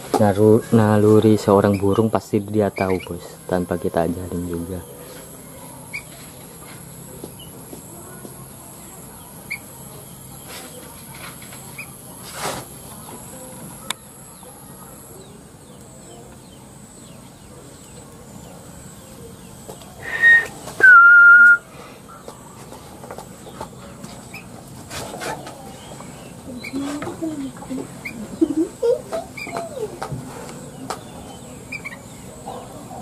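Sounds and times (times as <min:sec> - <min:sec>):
loud two-part whistle: 0:20.0 - 0:21.6.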